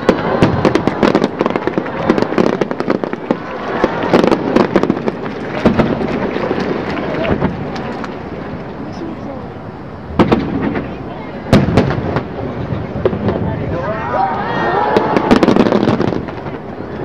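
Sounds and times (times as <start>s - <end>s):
fireworks bangs and crackles: 0.0s - 9.2s, 10.0s - 13.9s, 14.7s - 17.0s.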